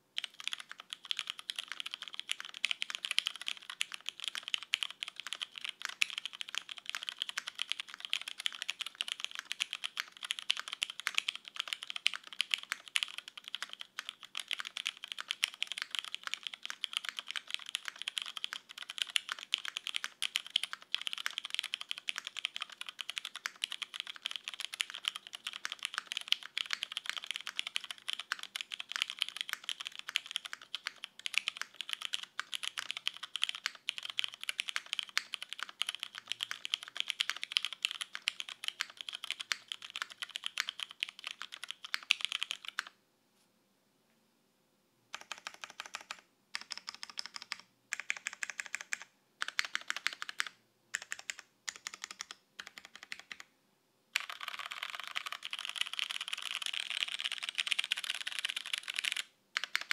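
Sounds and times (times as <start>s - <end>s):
mechanical keyboard typing: 0.2s - 43.0s, 45.1s - 53.5s, 54.2s - 59.9s.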